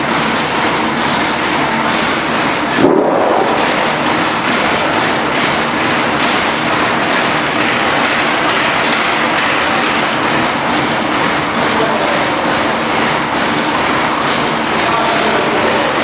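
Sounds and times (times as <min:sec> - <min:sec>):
steam engine clattering: 0:00.0 - 0:16.0.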